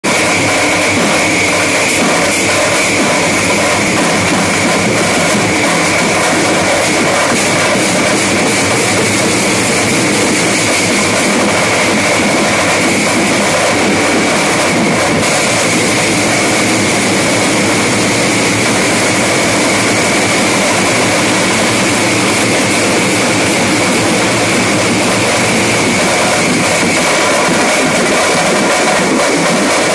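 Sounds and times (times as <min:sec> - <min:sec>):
drum band playing: 0:00.0 - 0:29.9.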